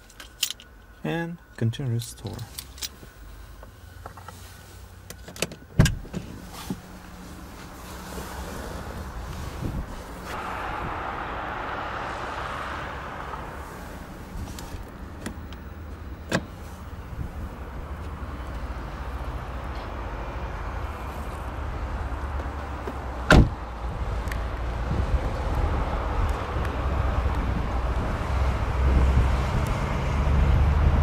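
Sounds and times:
car door shutting: 5.3 - 6.8, 16.2 - 16.6, 23.3 - 23.6
wind rumble on microphone: 8.3 - 15.8, 23.4 - 31.0.

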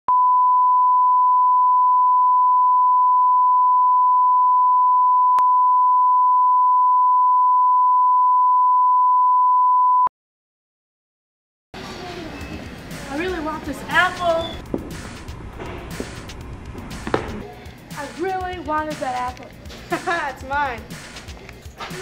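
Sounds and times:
steady test tone beep: 0.1 - 10.1, 14.4 - 14.7.

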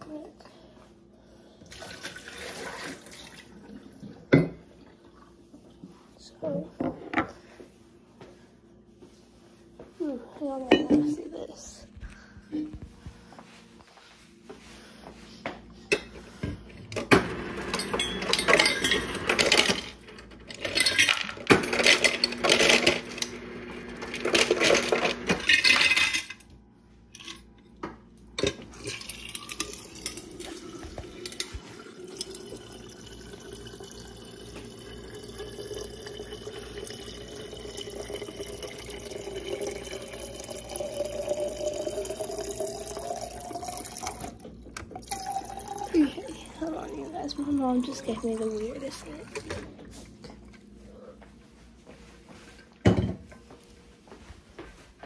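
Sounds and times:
water stream filling bottle: 28.8 - 49.5.

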